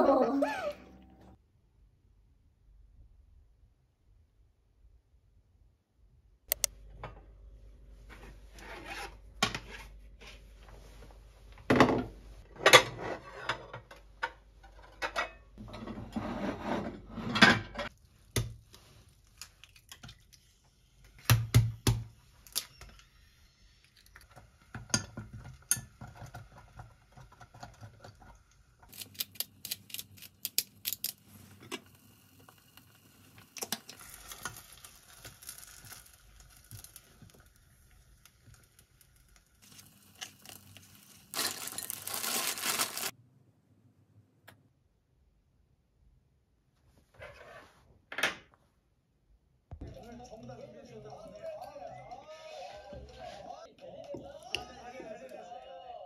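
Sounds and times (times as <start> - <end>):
eggs cracking: 28.9 - 31.2
rustling: 40.5 - 43.1.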